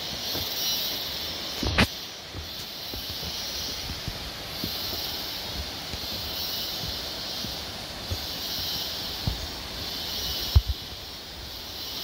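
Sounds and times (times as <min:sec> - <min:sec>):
footsteps on concrete path: 0:00.0 - 0:12.0
steady high forest hiss: 0:00.0 - 0:12.0.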